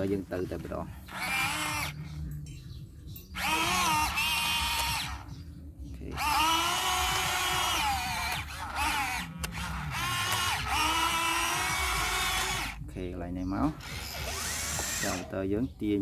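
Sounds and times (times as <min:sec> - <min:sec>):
small electric motors whining: 0:01.0 - 0:02.2, 0:03.4 - 0:05.4, 0:06.1 - 0:12.8, 0:13.7 - 0:15.4.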